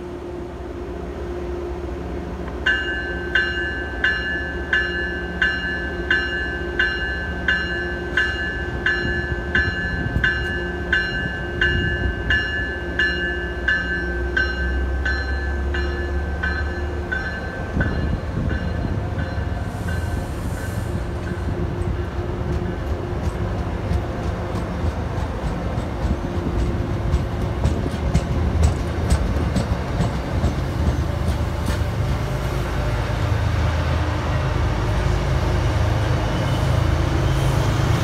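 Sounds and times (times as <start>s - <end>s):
train rumble: 0.0s - 38.0s
train bell ringing: 2.7s - 23.4s.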